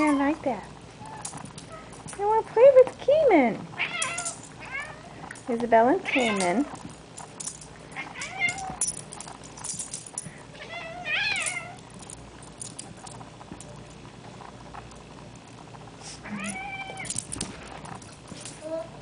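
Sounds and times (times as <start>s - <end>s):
cat meowing: 3.8s - 5.1s, 10.6s - 11.8s, 16.2s - 17.1s.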